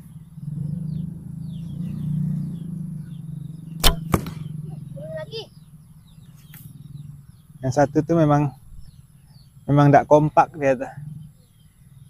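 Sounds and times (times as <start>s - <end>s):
arrow thudding into target: 3.8s - 4.5s
bow string snapping: 3.8s - 4.5s.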